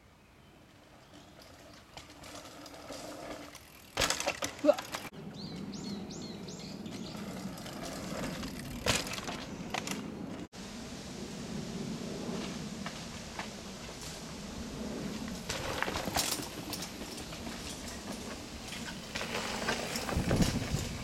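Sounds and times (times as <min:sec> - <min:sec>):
bike tyres on dirt: 0:00.4 - 0:21.0
bike clicking and rattling: 0:00.8 - 0:05.6, 0:06.8 - 0:10.5, 0:15.2 - 0:21.0.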